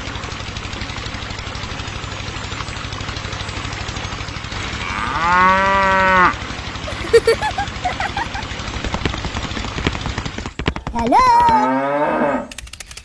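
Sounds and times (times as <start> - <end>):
small engine puttering: 0.0 - 11.8
cow mooing: 4.8 - 6.4, 11.5 - 12.5.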